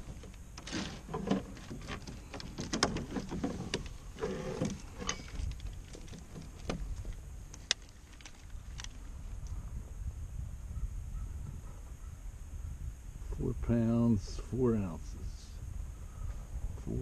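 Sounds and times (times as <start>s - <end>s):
fishing gear clicking and rattling: 0.0s - 9.0s.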